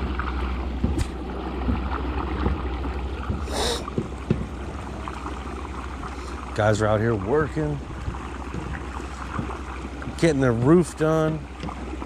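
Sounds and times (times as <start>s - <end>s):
soft knocks: 3.2s - 4.6s.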